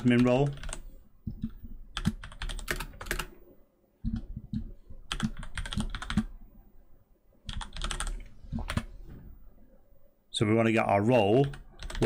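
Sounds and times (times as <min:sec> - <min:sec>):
typing on computer keyboard: 0:00.0 - 0:03.3, 0:04.1 - 0:06.3, 0:07.5 - 0:08.9, 0:11.4 - 0:12.0.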